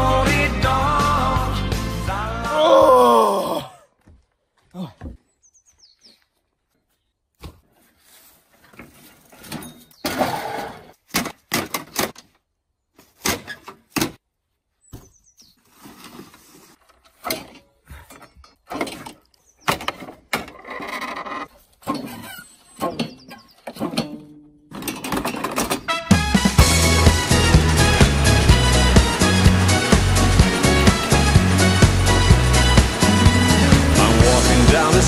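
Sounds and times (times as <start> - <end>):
lawnmower and bicycle clattering: 15.8 - 35.0.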